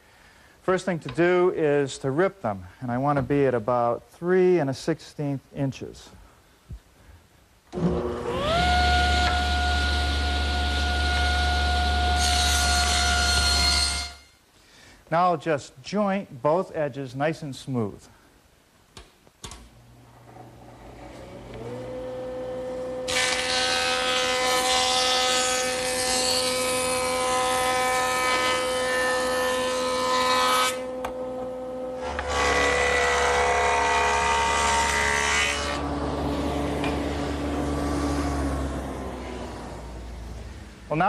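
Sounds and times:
jointer motor whine: 7.8 - 12.4, 20.2 - 24.9
board cutting noise: 7.8 - 14.2, 20.7 - 40.0.

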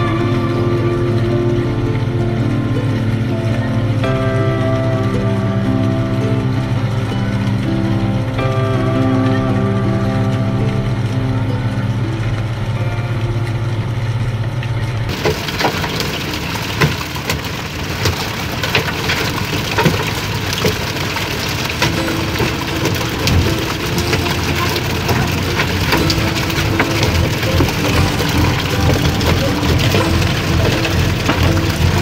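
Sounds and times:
boat engine humming: 0.0 - 32.0
sea and spray rushing: 14.6 - 32.0.

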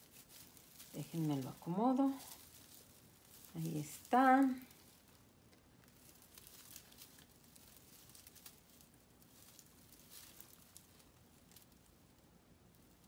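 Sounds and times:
artificial tree branches rustling: 0.0 - 13.0.

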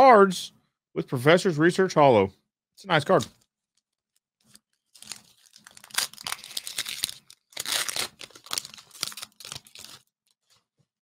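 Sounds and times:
foil wrapper tearing and crinkling: 4.4 - 10.4.

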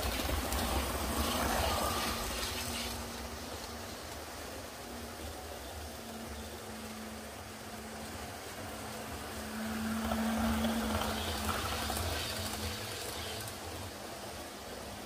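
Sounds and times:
model train motor hum: 5.2 - 15.0.

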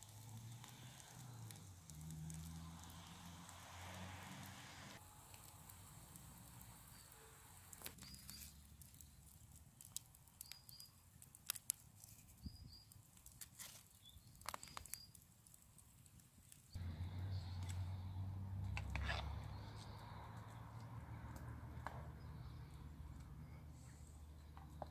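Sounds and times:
wood fire crackling: 0.0 - 24.9
small bird chirping: 7.9 - 9.2, 10.3 - 11.0, 12.2 - 13.0, 13.9 - 15.2.

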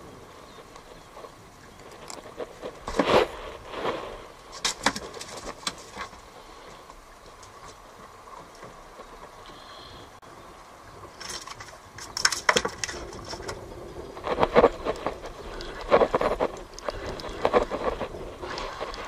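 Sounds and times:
fishing tackle clicks and scrapes: 0.8 - 6.3, 11.1 - 19.0.

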